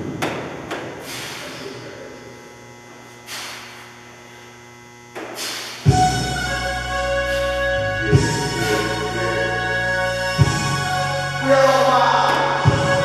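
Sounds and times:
low electrical hum: 0.0 - 13.0
short hissing noises: 1.0 - 1.8, 3.1 - 3.9, 5.2 - 5.9
background music: 5.9 - 13.0.

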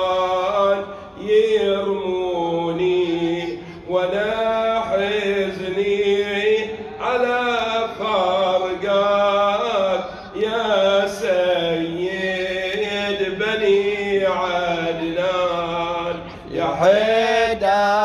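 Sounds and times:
man chanting into a microphone: 0.0 - 18.0.

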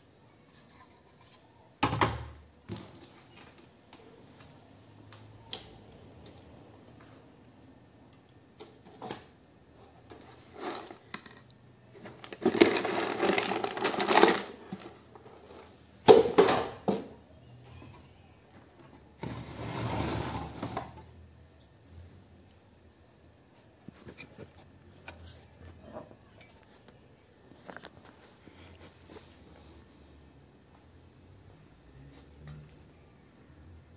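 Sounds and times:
metal parts rattling and clattering: 12.1 - 14.9.

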